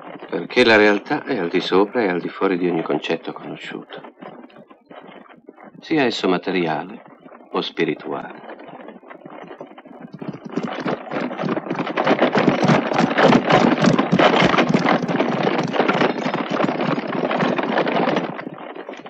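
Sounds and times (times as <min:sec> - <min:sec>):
hooves and carriage wheels clattering: 0:00.0 - 0:19.0.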